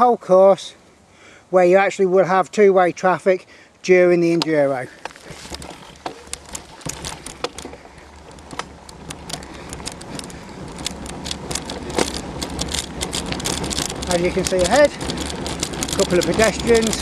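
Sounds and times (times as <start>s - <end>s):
bike tyres clicking and rattling: 4.4s - 17.0s.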